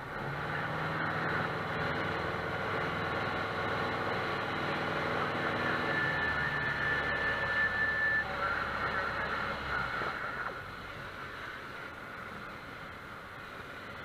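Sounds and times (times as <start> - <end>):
airplane engine running: 0.0 - 14.0
high-pitched tone: 5.2 - 9.6.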